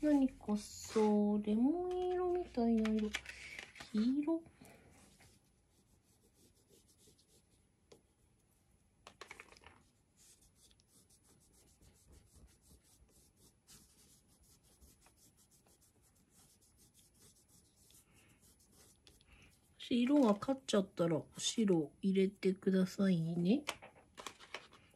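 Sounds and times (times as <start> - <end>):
crayon scratching on paper: 5.1 - 7.6, 9.8 - 20.3.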